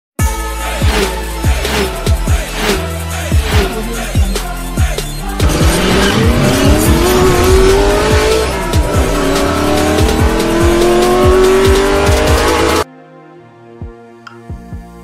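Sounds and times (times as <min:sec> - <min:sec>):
hip-hop music with booming drums: 0:00.2 - 0:12.8, 0:13.7 - 0:15.0
race car engine revving: 0:00.8 - 0:04.2, 0:05.2 - 0:12.8.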